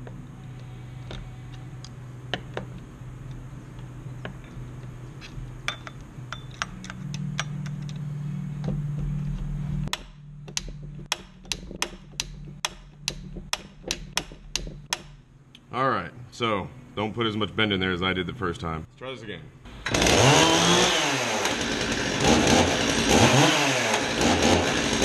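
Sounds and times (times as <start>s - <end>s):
steady low hum: 0.0s - 20.0s
hand tools clicking on metal: 9.9s - 15.1s.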